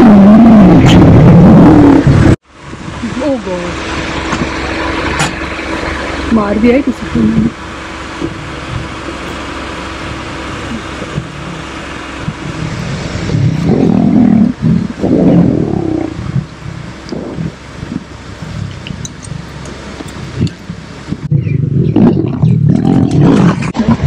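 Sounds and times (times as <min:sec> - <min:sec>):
lions growling: 0:00.0 - 0:02.2, 0:04.0 - 0:20.7, 0:21.6 - 0:24.0
vehicle engine idling: 0:02.0 - 0:21.6.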